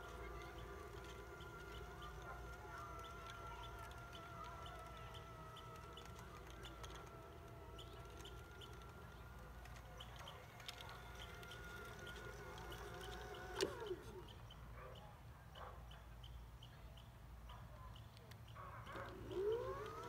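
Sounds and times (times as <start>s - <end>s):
electric motor whining: 0.0s - 14.4s, 19.0s - 20.0s.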